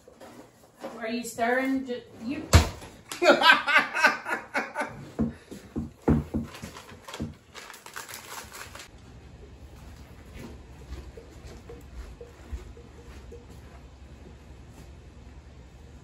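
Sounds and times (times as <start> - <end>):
utensil scraping metal bowl: 10.2 - 14.1.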